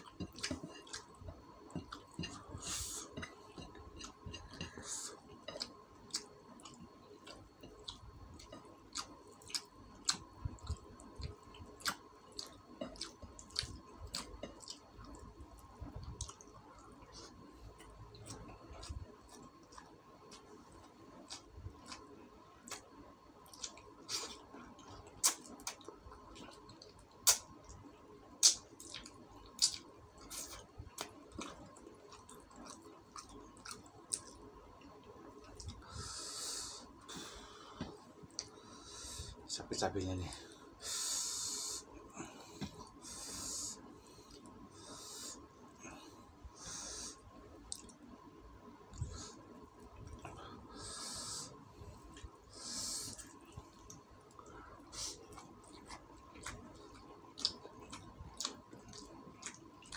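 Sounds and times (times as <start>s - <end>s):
chewing and mouth smacking: 0.0s - 2.5s, 5.4s - 15.3s, 16.0s - 17.2s, 18.1s - 27.8s, 28.4s - 35.8s, 47.7s - 48.0s, 53.1s - 59.9s
faint steady hum: 0.0s - 59.9s.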